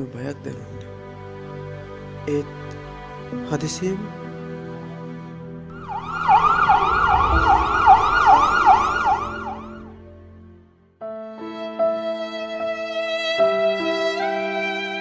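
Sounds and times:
sad background music: 0.0s - 15.0s
violin music: 0.6s - 15.0s
siren wailing: 5.7s - 10.0s.

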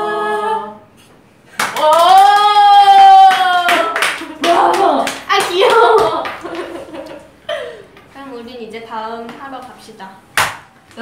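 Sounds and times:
hands clapping: 1.5s - 2.5s, 3.3s - 7.2s, 10.4s - 10.7s
excited talk: 1.8s - 6.9s
laughter: 6.4s - 7.8s.

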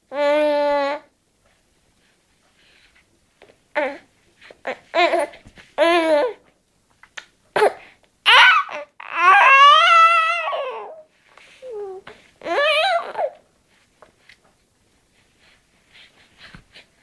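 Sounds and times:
baby babbling and cooing: 0.1s - 1.1s, 3.7s - 6.5s, 7.6s - 13.4s.

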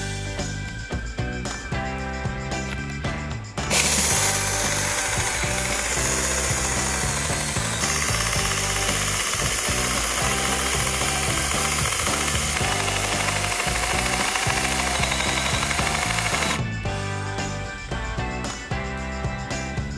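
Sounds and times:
chainsaw cutting tree stump: 3.7s - 16.6s.

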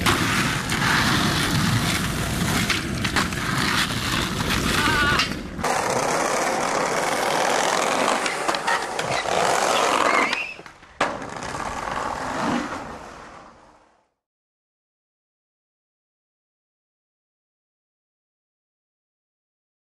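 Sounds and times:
skateboard clattering: 0.0s - 13.3s
sharp skateboard crack: 0.0s - 14.1s
skateboard wheels rolling on concrete: 0.0s - 14.2s.

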